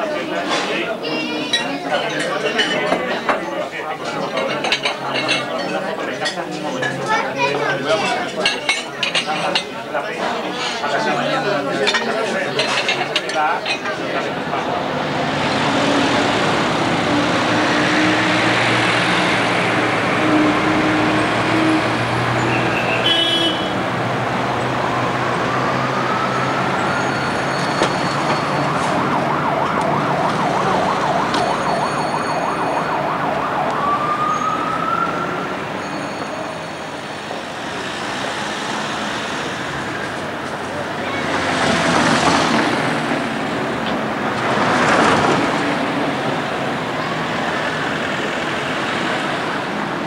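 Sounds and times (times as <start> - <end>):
vehicles passing close: 0.0 - 50.0
siren-like whine warbling: 25.0 - 36.8.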